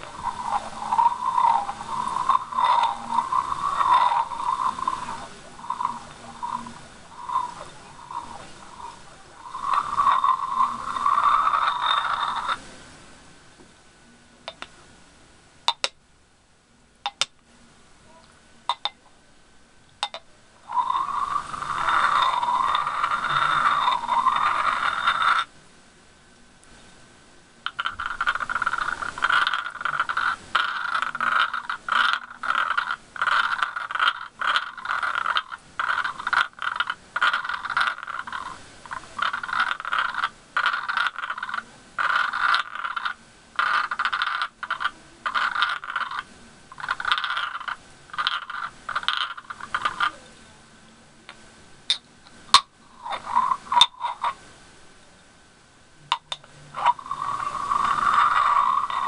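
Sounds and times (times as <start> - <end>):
glass jars scraping together: 0.0 - 12.6, 20.0 - 25.5, 27.7 - 50.2, 52.6 - 54.4, 56.1 - 59.0.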